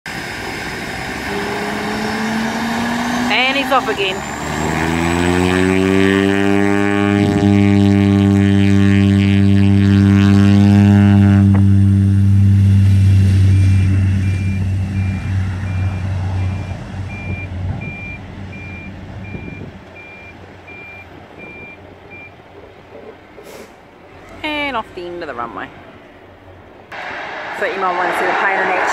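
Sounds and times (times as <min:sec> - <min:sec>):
propeller plane engine drone: 0:00.1 - 0:28.5
rushing engine noise: 0:00.1 - 0:28.9
faint regular beeping: 0:16.4 - 0:23.2.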